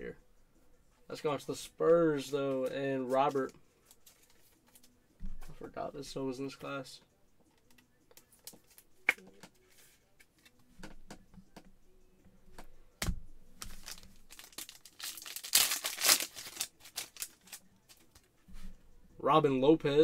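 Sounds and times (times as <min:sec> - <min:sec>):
plastic wrapper crinkling: 0:13.7 - 0:17.6.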